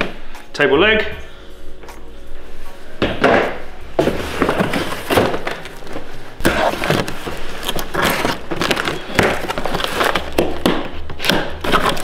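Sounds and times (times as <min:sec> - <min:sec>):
tape and cardboard crackling: 0:03.2 - 0:12.0.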